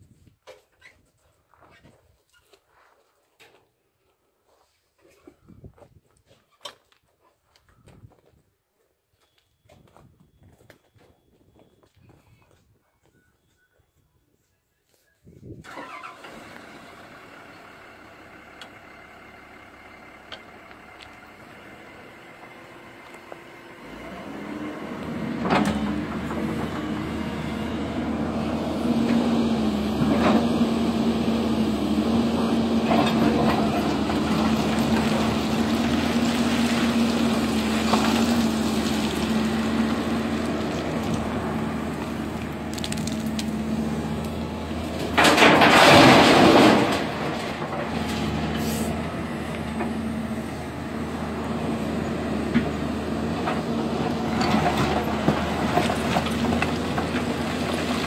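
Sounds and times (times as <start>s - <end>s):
excavator engine and hydraulics: 15.4s - 58.0s
stone tumbling: 42.0s - 43.6s.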